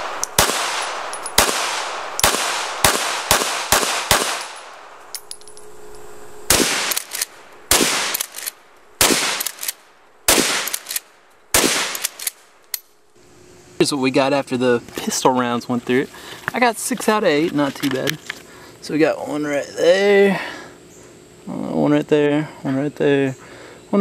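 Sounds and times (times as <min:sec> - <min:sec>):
pistol shots: 0:00.0 - 0:05.0, 0:06.5 - 0:12.5.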